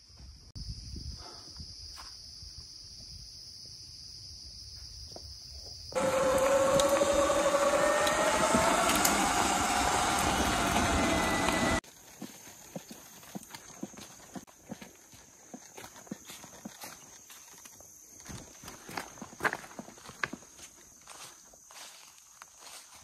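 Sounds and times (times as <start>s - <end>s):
electric motor whine: 6.0s - 11.8s.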